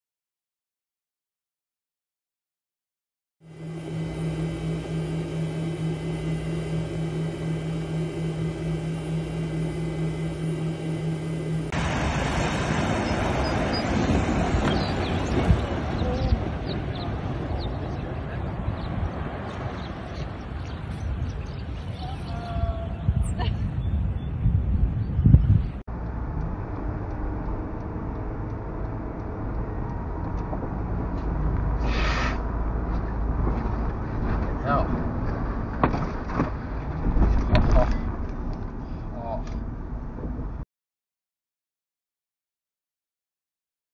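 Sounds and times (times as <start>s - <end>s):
low mechanical drone: 3.4s - 40.6s
road noise inside a car: 25.9s - 40.6s
burst of hiss: 31.8s - 32.4s.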